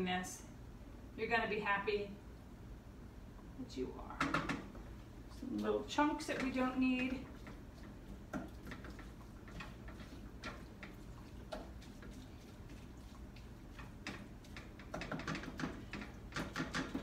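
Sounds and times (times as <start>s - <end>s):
wooden spatula scraping frying pan: 5.4s - 17.0s.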